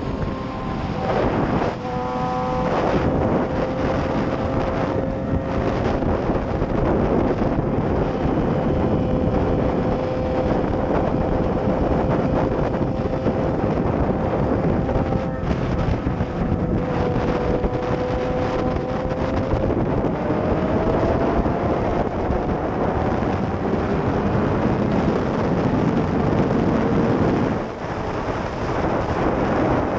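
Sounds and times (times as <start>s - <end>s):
motorcycle engine at speed: 0.0s - 29.9s
wind noise on microphone: 0.0s - 29.9s.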